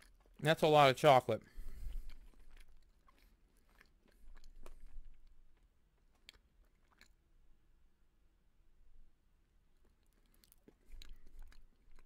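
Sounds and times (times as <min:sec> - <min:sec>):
chewing cookie: 0:00.0 - 0:00.6, 0:01.5 - 0:07.4, 0:09.6 - 0:12.0
wet mouth clicks: 0:01.8 - 0:07.2, 0:09.8 - 0:12.0.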